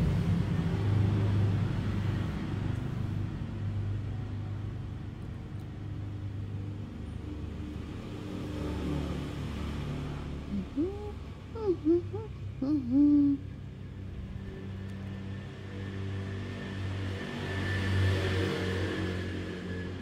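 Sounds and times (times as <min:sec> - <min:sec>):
vehicle engine rumbling: 0:00.0 - 0:15.9.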